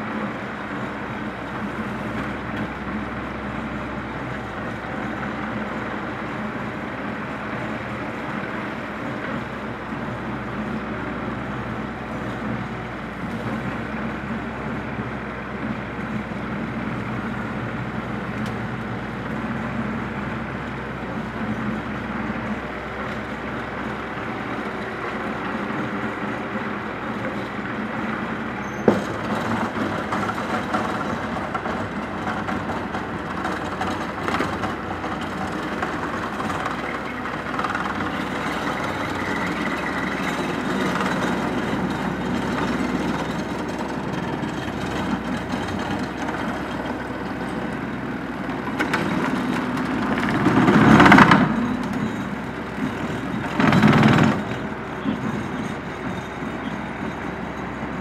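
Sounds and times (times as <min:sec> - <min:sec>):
tractor engine running: 0:00.0 - 0:58.0
rotary mower cutting grass: 0:17.0 - 0:58.0.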